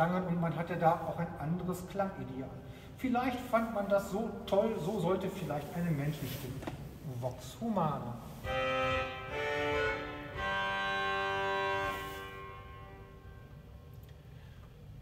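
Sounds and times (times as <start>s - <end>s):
pipe organ chords: 8.4s - 14.0s.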